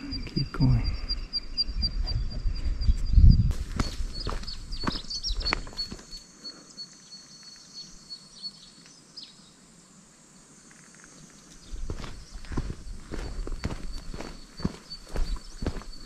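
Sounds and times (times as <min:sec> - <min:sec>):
footsteps on hiking trail: 0:03.5 - 0:06.3, 0:11.1 - 0:16.0.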